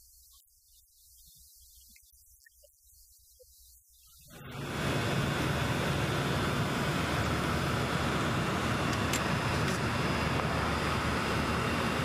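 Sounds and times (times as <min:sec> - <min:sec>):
aircraft engines droning in cabin: 0:04.3 - 0:12.0.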